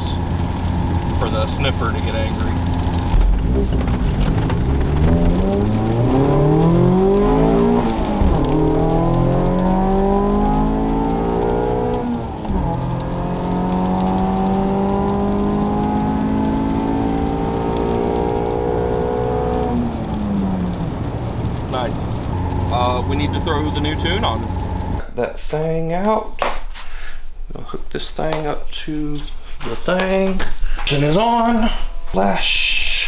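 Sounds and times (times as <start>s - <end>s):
car engine accelerating: 0.0s - 25.0s.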